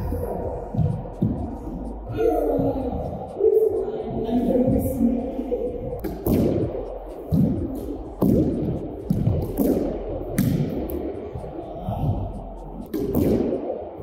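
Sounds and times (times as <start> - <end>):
ball hitting walls and floor: 6.0 - 6.7, 7.3 - 11.0, 12.8 - 13.6
racquet hitting ball: 6.0 - 6.7, 7.3 - 11.1, 12.9 - 13.6.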